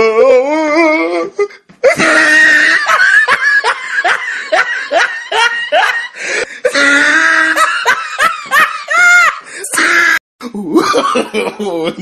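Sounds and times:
high-pitched laughter squeals: 0:01.8 - 0:06.0.

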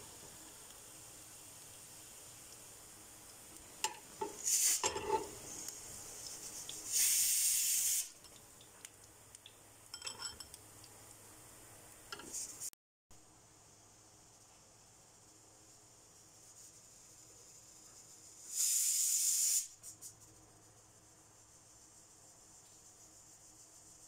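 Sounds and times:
oil sizzling: 0:00.0 - 0:12.7
metal spoon scraping a pan: 0:03.8 - 0:05.5.

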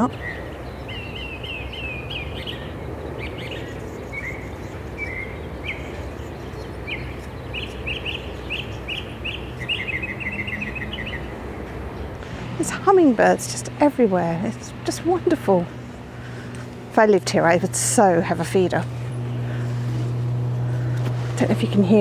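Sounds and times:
mockingbird singing: 0:00.0 - 0:12.8
steady low hum: 0:00.0 - 0:22.0.

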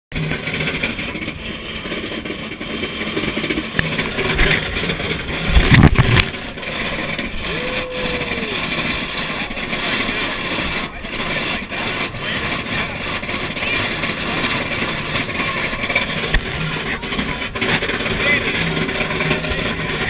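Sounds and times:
roller coaster rushing noise: 0:00.1 - 0:20.0
loud rumbling thump: 0:02.8 - 0:07.6.

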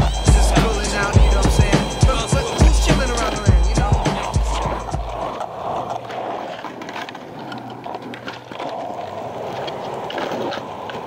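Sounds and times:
skateboard clacks: 0:00.1 - 0:11.0
skateboard wheels rolling on asphalt: 0:03.2 - 0:11.0.

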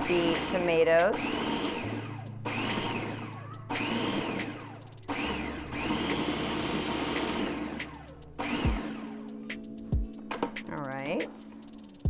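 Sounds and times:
food processor motor whine: 0:00.0 - 0:09.1.

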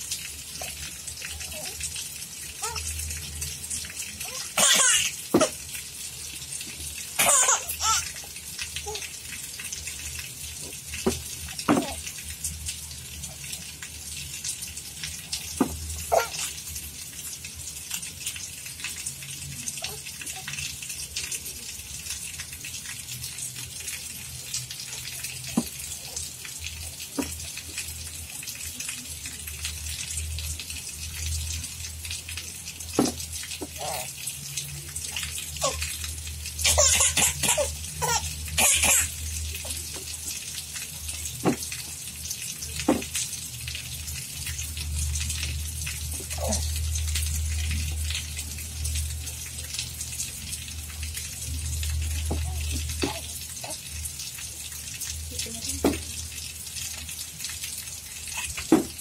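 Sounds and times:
baby laughing: 0:04.3 - 0:05.6, 0:07.2 - 0:08.2, 0:16.0 - 0:16.6, 0:33.6 - 0:34.1, 0:35.6 - 0:35.9, 0:36.6 - 0:39.8.

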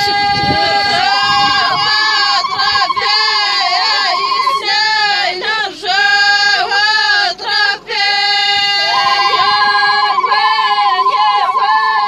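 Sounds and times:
high trilling note: 0:00.0 - 0:04.8, 0:08.8 - 0:12.0
women singing: 0:00.0 - 0:12.0.

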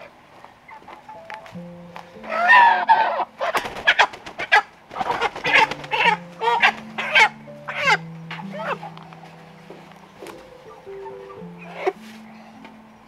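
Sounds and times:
chicken squawking: 0:02.3 - 0:09.0.

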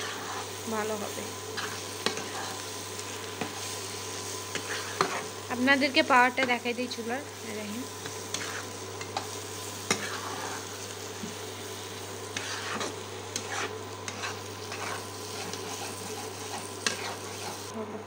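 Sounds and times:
spatula scraping pan: 0:00.0 - 0:00.6, 0:01.4 - 0:06.7, 0:07.9 - 0:11.4, 0:12.3 - 0:17.7
food sizzling in frying pan: 0:00.0 - 0:17.8.

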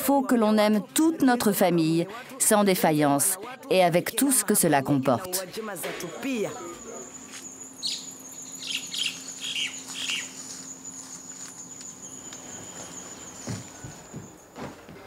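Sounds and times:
high-pitched insect trill: 0:05.8 - 0:14.6
birds chirping: 0:06.0 - 0:14.6.

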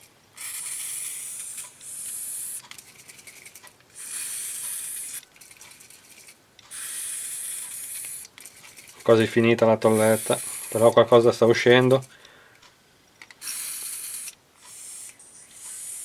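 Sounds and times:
aerosol can spraying hiss: 0:00.4 - 0:02.6, 0:04.0 - 0:05.2, 0:06.7 - 0:08.3, 0:09.8 - 0:11.0, 0:13.4 - 0:16.0.

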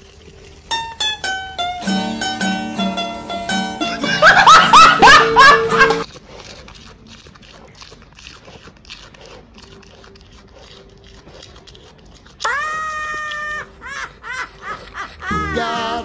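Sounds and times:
woman laughing shrilly: 0:03.8 - 0:06.0, 0:12.5 - 0:16.0.

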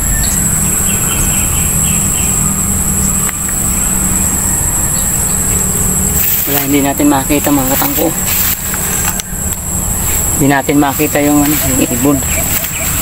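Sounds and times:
bird chirps: 0:00.0 - 0:07.0, 0:11.0 - 0:13.0
insect drone: 0:00.0 - 0:13.0.

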